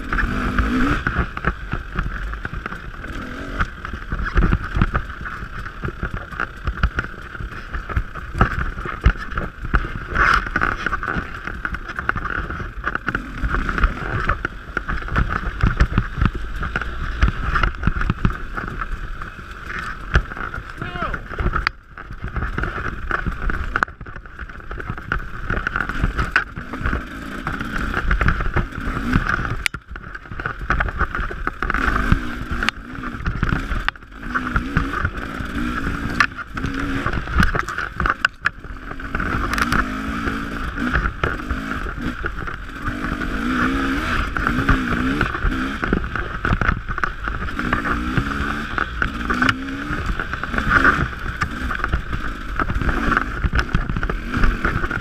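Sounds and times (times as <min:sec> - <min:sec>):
dirt bike engine revving: 0:00.0 - 0:55.0
wind and bumps on microphone: 0:00.0 - 0:55.0.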